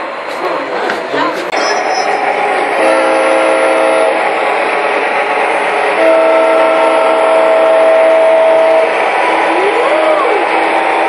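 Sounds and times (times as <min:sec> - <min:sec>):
model locomotive diesel horn: 0:02.8 - 0:04.2, 0:06.0 - 0:08.9.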